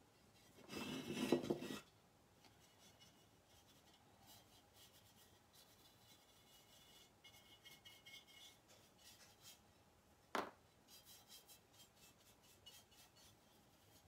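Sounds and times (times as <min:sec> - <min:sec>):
stiff brush scrubbing paint: 0:10.9 - 0:14.0.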